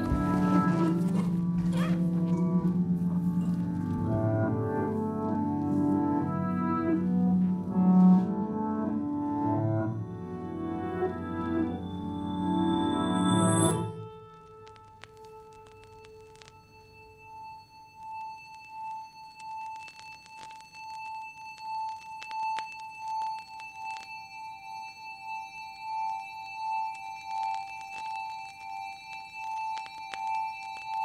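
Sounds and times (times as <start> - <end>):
pulsing bell-like tone: 11.7 - 14.3
faint clicks: 14.3 - 16.6.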